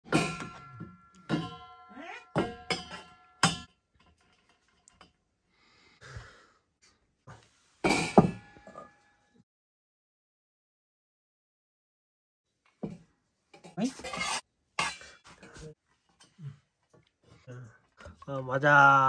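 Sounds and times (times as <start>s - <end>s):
hard objects clinking and clanking: 0.0s - 5.2s.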